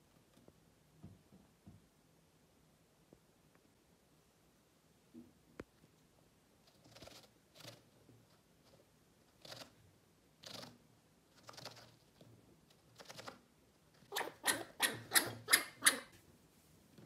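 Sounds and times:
chinchilla scratching inside pumpkin: 6.6 - 8.0, 9.4 - 9.8, 10.4 - 13.4, 14.0 - 16.1.

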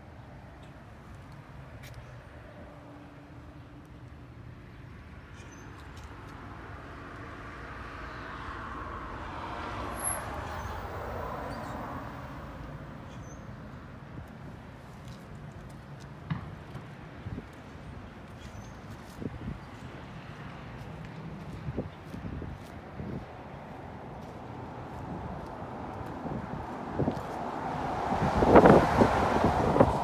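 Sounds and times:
car passing by: 6.7 - 13.1, 23.8 - 30.0.

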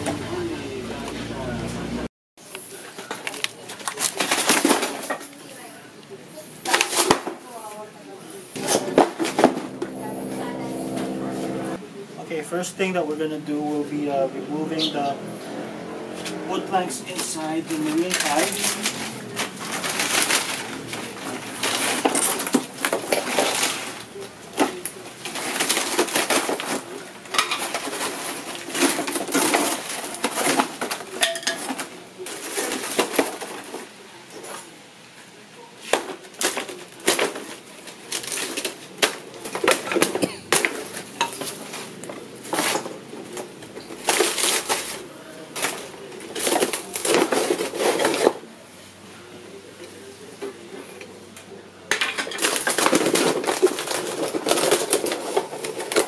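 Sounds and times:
wooden planks clattering: 17.2 - 33.8.

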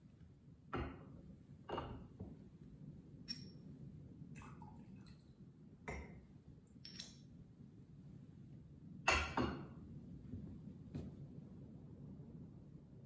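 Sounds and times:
glass clinks: 3.3 - 3.6, 6.8 - 7.2.

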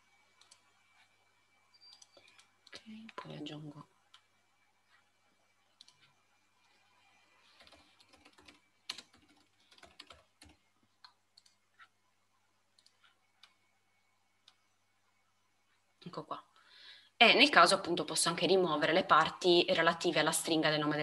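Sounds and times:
faint typing on keyboard: 0.0 - 16.1.

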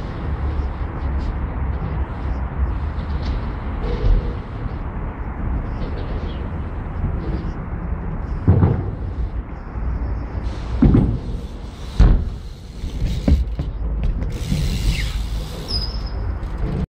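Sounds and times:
bike thuds on concrete: 8.4 - 9.1, 10.8 - 12.4, 13.0 - 14.6.

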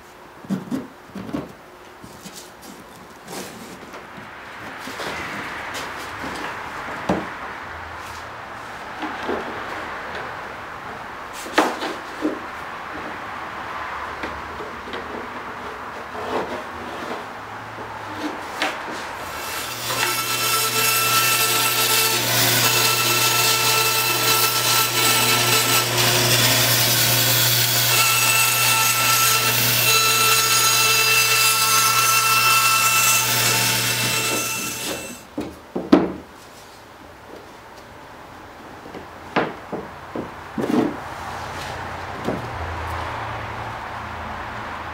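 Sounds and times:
bandsaw cutting wood: 19.2 - 35.3.

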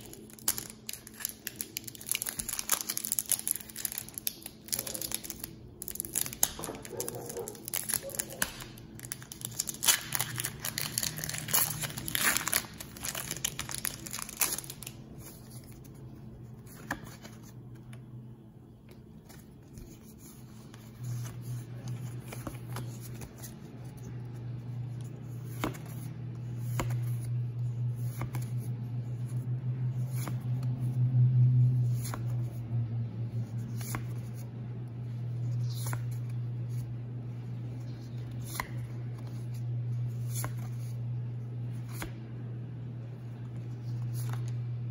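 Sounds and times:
foil wrapper crinkling and tearing: 0.0 - 15.0
cards being flipped: 0.0 - 18.1, 18.9 - 27.4, 28.0 - 28.6, 33.6 - 34.5, 35.6 - 36.9, 37.6 - 41.0, 41.7 - 42.2, 43.0 - 44.7
low hum: 0.0 - 44.9.

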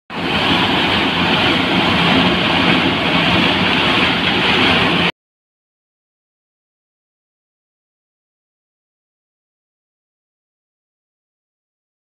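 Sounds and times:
threshing machine running: 0.1 - 5.1.

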